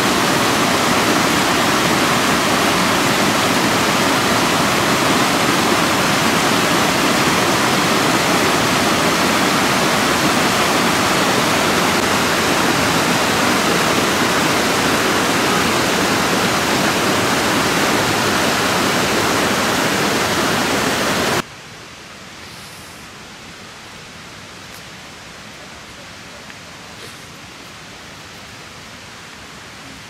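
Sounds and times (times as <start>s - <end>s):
stream rushing over rocks: 0.0s - 21.5s
steady hiss: 0.0s - 30.0s.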